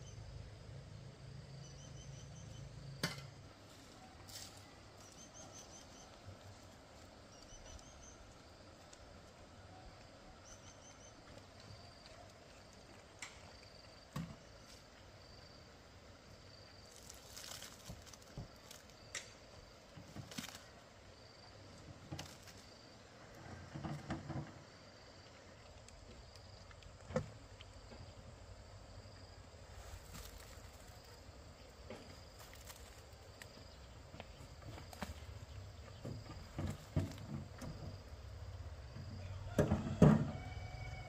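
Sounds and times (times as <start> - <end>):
faint high chirp: 1.6 - 2.8, 3.9 - 6.3, 7.3 - 8.4, 10.4 - 11.4
knocks and rustles: 23.4 - 24.8, 33.6 - 38.2.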